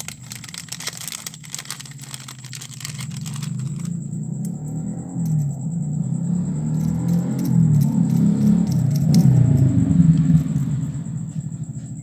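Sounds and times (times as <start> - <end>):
plastic wrapping crinkling: 0.0 - 3.9
vehicle engine rumble: 0.0 - 12.0.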